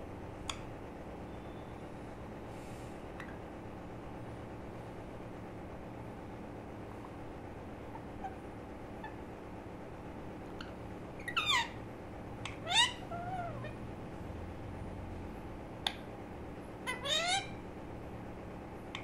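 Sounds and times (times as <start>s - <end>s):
steady low hum: 0.0s - 19.0s
parakeet calling: 10.6s - 13.8s, 16.8s - 17.6s.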